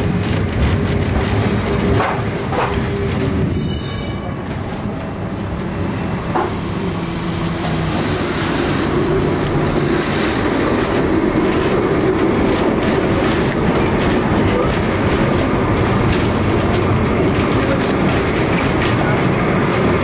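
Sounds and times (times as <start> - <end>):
tram wheels and motor rumbling: 0.0 - 20.0
high wheel squeal: 3.5 - 4.3, 6.4 - 10.2.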